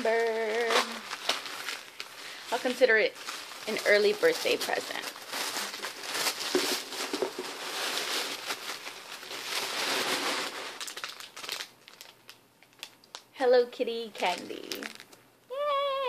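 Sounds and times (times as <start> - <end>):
tissue paper rustling: 0.0 - 12.2.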